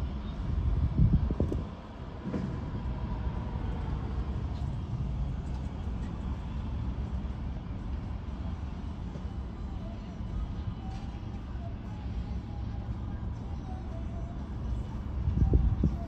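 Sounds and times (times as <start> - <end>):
freight train rumbling: 0.0 - 16.0.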